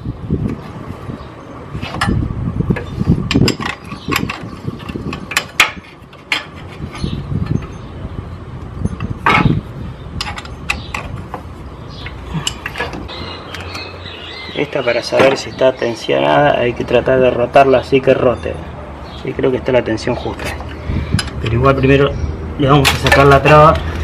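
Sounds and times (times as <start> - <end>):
hand tools clinking on metal: 10.2 - 11.2, 12.0 - 13.9.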